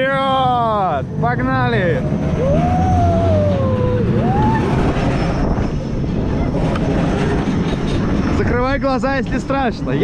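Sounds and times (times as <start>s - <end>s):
wind on microphone: 2.2s - 10.0s.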